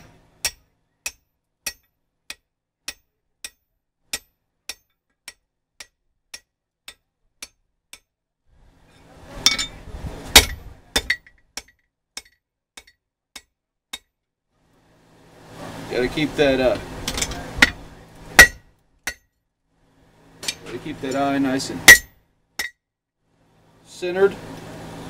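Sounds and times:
hammer striking steel: 0.0s - 8.1s, 9.4s - 14.1s, 17.1s - 17.8s, 18.4s - 19.3s, 21.8s - 22.8s
metal clanking: 17.0s - 19.2s.

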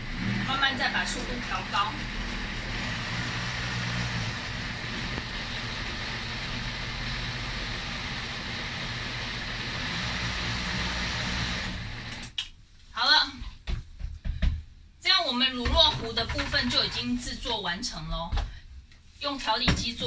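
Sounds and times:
blender running: 0.0s - 12.4s.

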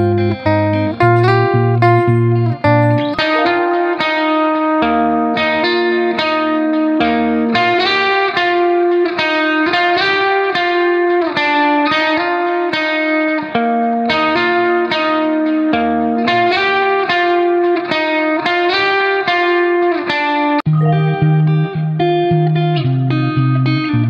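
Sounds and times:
plucked guitar melody: 0.0s - 24.0s.

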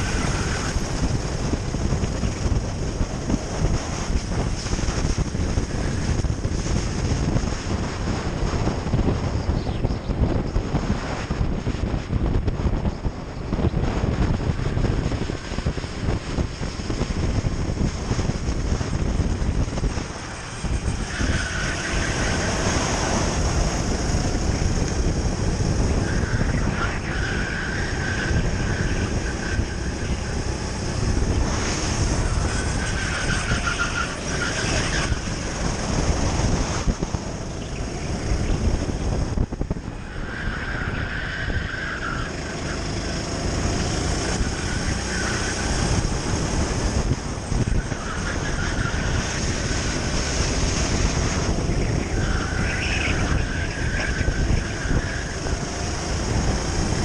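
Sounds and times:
wind buffeting microphone: 0.0s - 57.0s
kart engine running under load: 42.3s - 57.0s.

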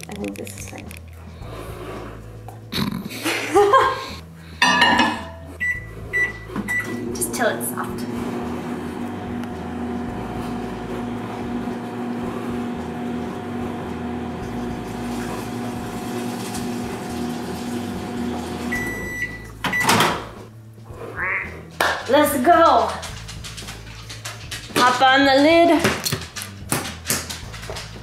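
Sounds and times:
microwave beeping: 5.2s - 7.7s, 8.3s - 20.3s
microwave oven humming: 5.7s - 20.2s.

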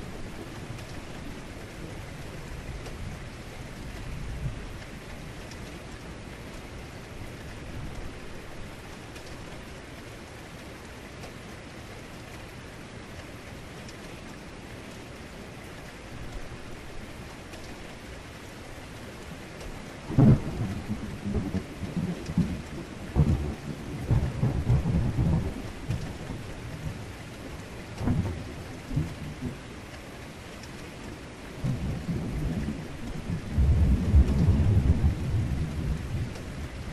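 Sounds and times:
heavy rain: 0.0s - 36.9s
thunder rumbling: 20.1s - 27.0s, 31.6s - 36.9s.

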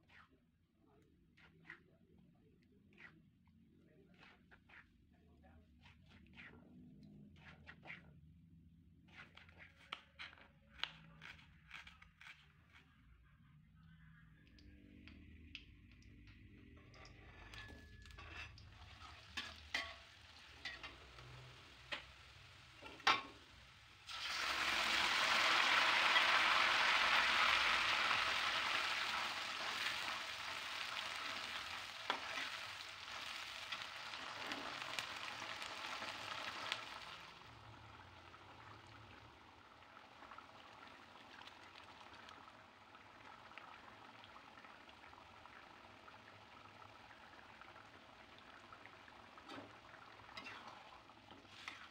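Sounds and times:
food sizzling in hot oil: 18.6s - 51.9s.

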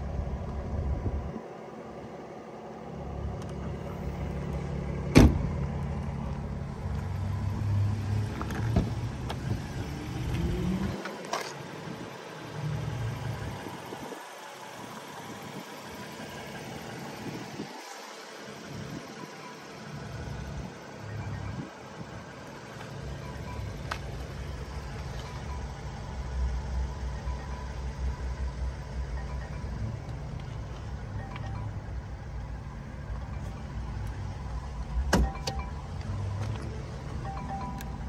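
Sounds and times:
trunk lid slamming: 5.1s - 5.5s.

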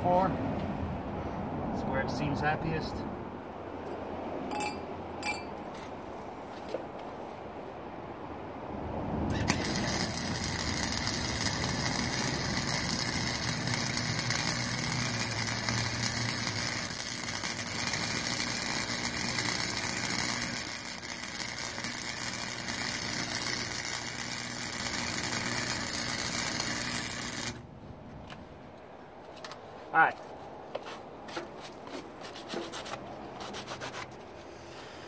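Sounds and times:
welder arc crackling hiss: 9.3s - 27.6s
low welder hum: 9.3s - 27.7s.

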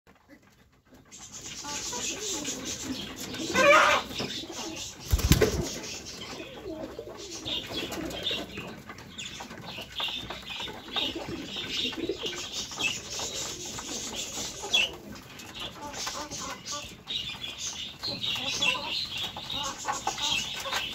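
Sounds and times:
wings flapping: 1.2s - 8.6s
pigeon cooing: 1.4s - 8.7s, 10.8s - 17.0s.

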